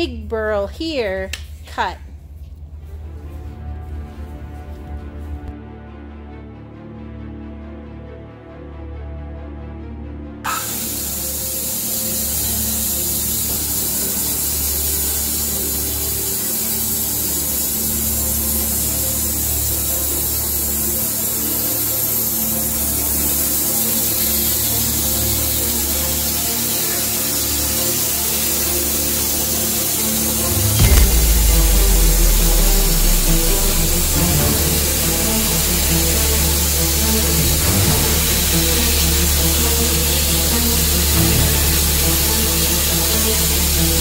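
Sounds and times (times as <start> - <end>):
bandsaw hissing through log: 10.5 - 44.0
mill low hum: 30.4 - 35.9
loud low rumble: 30.4 - 36.2.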